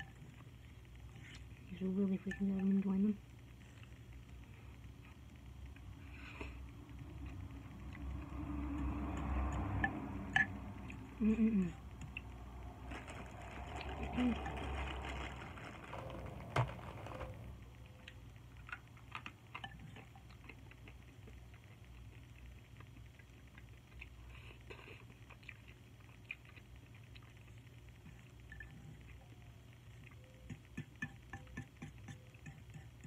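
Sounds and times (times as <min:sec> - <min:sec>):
chewing noodles: 0:18.1 - 0:30.3.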